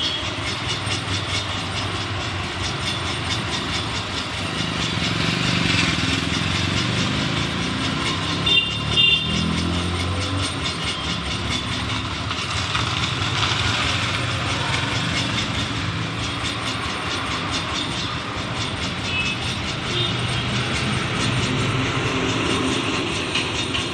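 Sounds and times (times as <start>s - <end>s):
motorbikes and scooters passing: 0.0s - 23.9s
road noise: 0.0s - 23.9s
short horn beeps: 8.4s - 9.4s.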